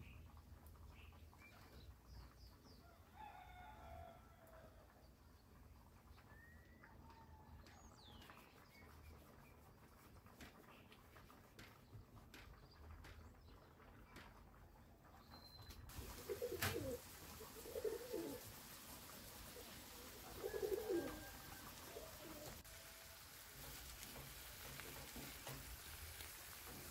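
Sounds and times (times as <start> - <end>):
bird cooing: 16.0 - 18.5, 19.4 - 22.6.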